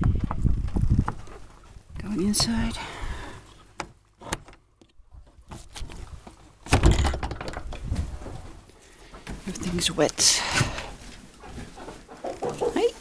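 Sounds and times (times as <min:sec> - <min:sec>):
wooden door thump: 0:06.7 - 0:07.8.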